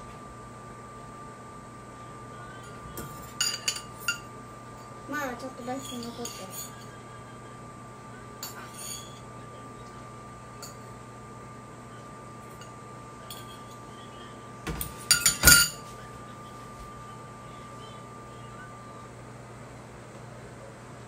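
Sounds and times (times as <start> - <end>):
chopsticks clinking on ceramic: 3.2 - 4.3, 15.0 - 15.8
faint steady high tone: 11.5 - 19.6.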